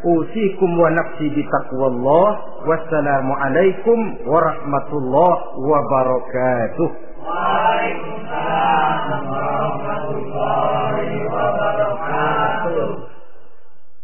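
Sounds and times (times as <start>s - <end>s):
crowd chanting in unison: 7.2s - 13.2s.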